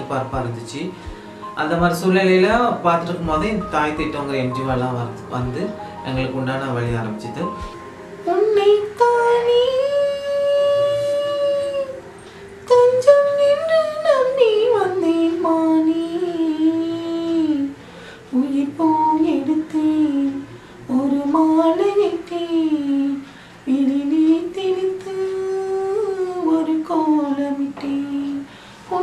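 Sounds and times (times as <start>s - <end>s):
woman singing: 7.6s - 29.0s.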